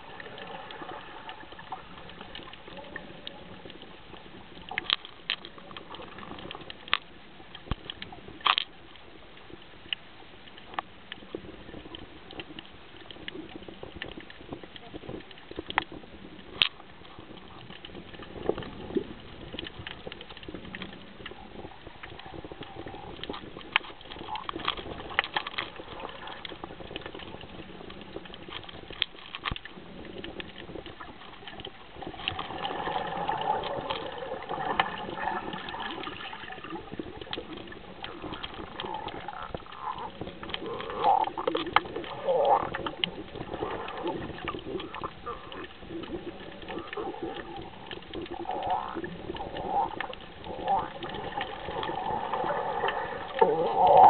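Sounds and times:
underwater crackling and clicking: 0:00.0 - 0:54.0
muffled wavering underwater calls: 0:32.4 - 0:54.0.

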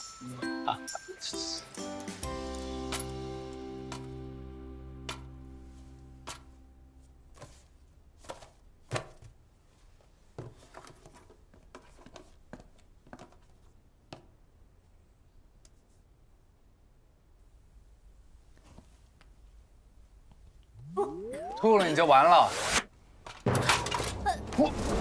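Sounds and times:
background music: 0:00.0 - 0:07.0.

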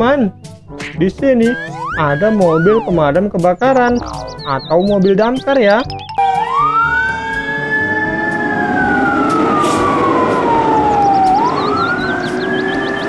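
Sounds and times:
truck rumble: 0:00.3 - 0:13.0
fire engine siren wailing: 0:01.5 - 0:04.3, 0:06.2 - 0:13.0.

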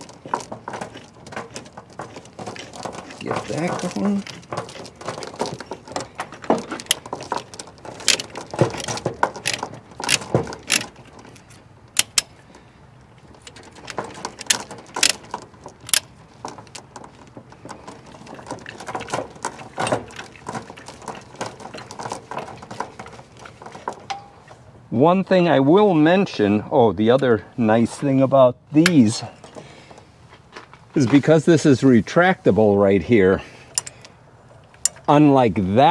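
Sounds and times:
ratchet binder clicking: 0:00.0 - 0:12.5, 0:13.4 - 0:24.2
chain links clinking: 0:00.0 - 0:24.6, 0:29.2 - 0:30.0, 0:33.7 - 0:34.2.

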